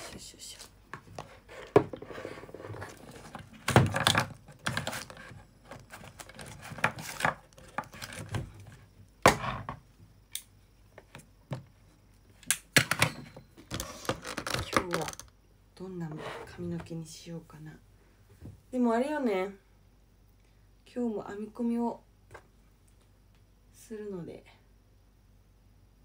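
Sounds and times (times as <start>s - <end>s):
objects knocking and rustling: 0.9s - 10.1s.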